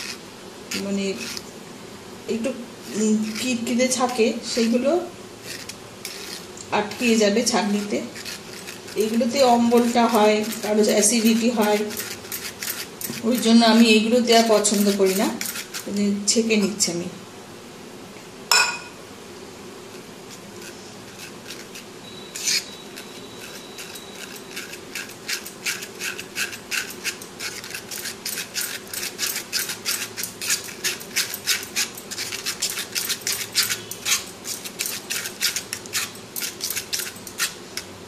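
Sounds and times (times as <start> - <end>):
spoon scraping a mesh strainer: 0.0 - 1.5, 2.4 - 16.8, 19.9 - 37.9
spoon clinking: 18.5 - 19.0, 22.0 - 37.9.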